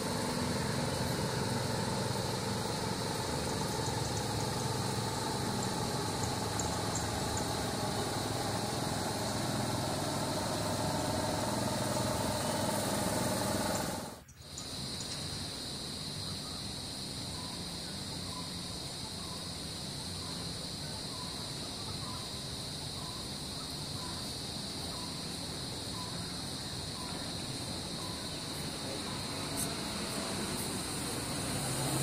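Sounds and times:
low steady rumble: 0:00.0 - 0:14.2
insects droning: 0:00.0 - 0:32.0.

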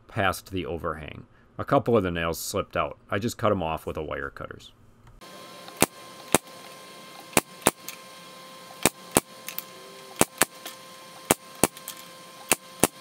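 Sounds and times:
nail gun firing: 0:05.7 - 0:06.6, 0:07.3 - 0:08.0, 0:08.8 - 0:13.0.

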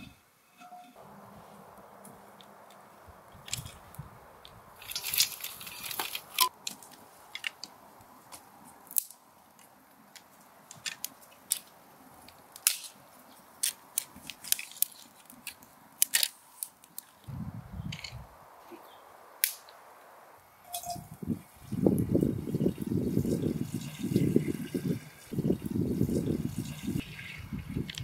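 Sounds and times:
wood fire crackling: 0:00.9 - 0:28.0
dry twigs snapping: 0:02.0 - 0:17.3, 0:19.4 - 0:19.8.

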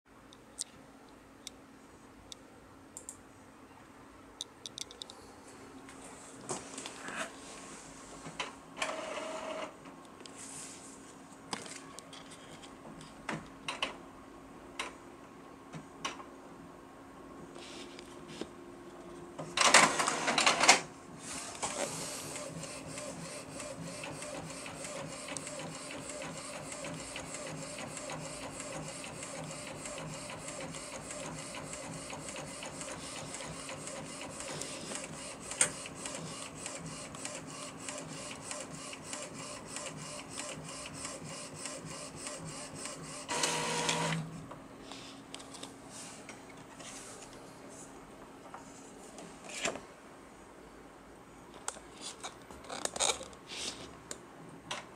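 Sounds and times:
printer whirring feeding paper out: 0:08.8 - 0:09.7, 0:19.6 - 0:44.4.

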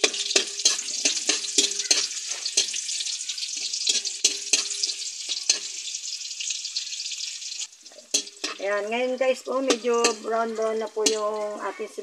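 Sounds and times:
metal spatula scraping a wok: 0:00.0 - 0:08.7
onion sizzling in oil: 0:00.0 - 0:12.0.

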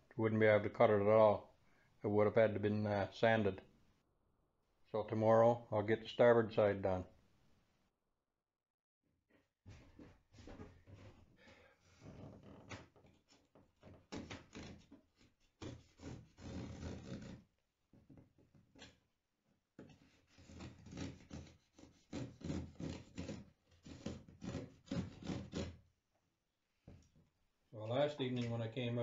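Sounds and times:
knife rasping through fiberglass cloth: 0:14.1 - 0:17.5, 0:19.9 - 0:25.8.

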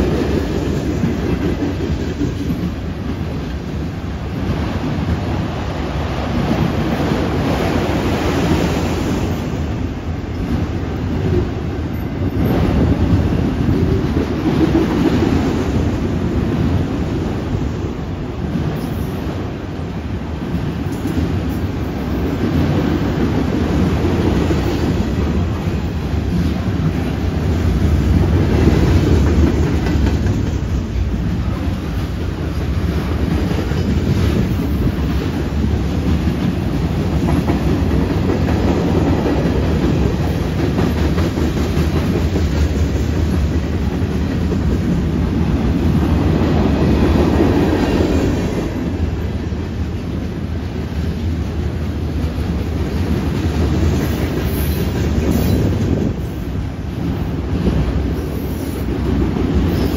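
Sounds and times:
freight train wheels rumbling: 0:00.0 - 0:59.9
wheels clacking over rail joints: 0:20.6 - 0:49.2.

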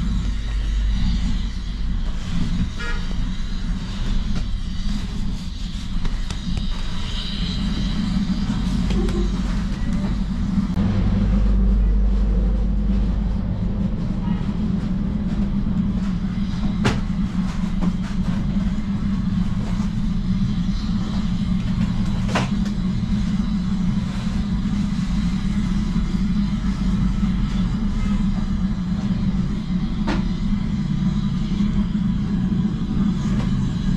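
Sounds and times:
low mechanical drone: 0:00.0 - 0:33.9.

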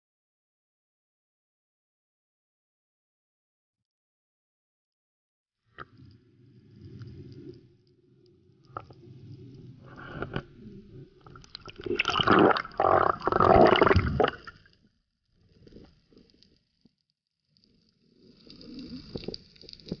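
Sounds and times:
water gurgling and rushing: 0:08.7 - 0:14.7.

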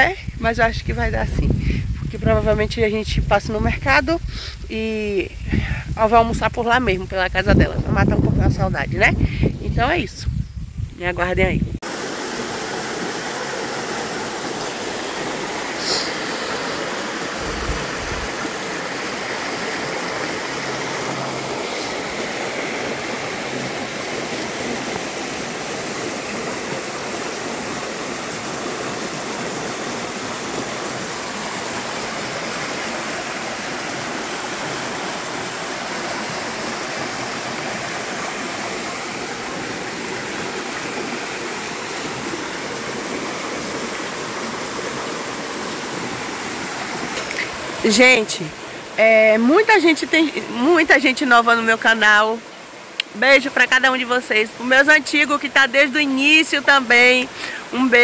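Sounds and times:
stream rushing over cascade: 0:11.0 - 0:58.0.

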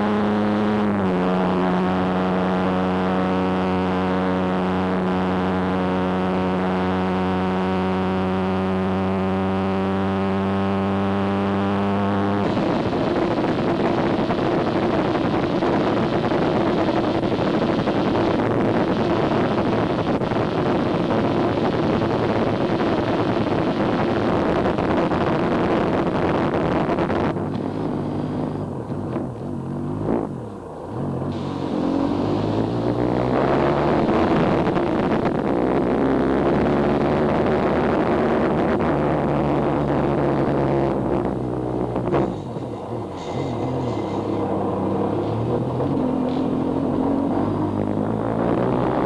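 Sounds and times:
motorcycle engine droning: 0:00.0 - 0:49.0
wind rushing on microphone: 0:12.2 - 0:49.0
motorcycles passing: 0:27.4 - 0:38.4, 0:40.0 - 0:49.0.

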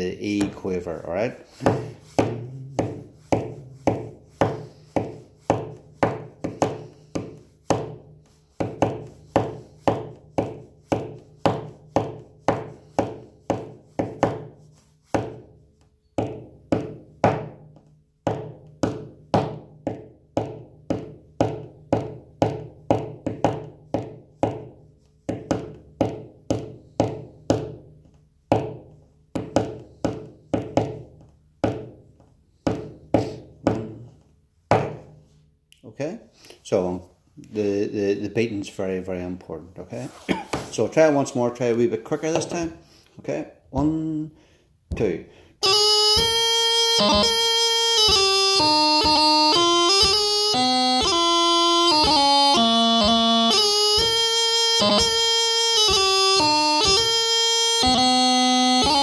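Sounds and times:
hand tapping on hard surface: 0:01.6 - 0:15.5, 0:16.2 - 0:35.2, 0:46.2 - 0:47.4, 0:54.0 - 0:54.2.

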